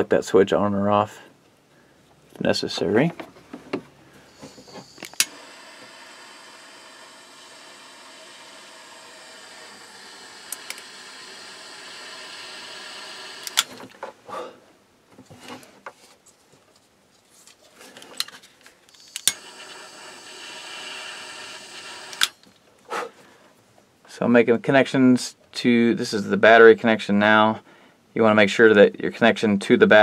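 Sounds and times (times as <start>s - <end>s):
soldering torch hissing: 4.3s - 13.8s, 19.0s - 22.3s
torch igniter click: 4.8s - 5.5s, 9.4s - 13.8s, 18.9s - 19.8s, 21.7s - 22.4s.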